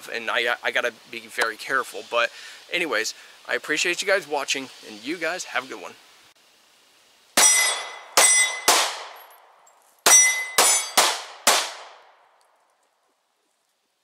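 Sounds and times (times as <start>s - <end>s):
pistol shots echoing: 7.4s - 9.2s, 10.0s - 12.0s.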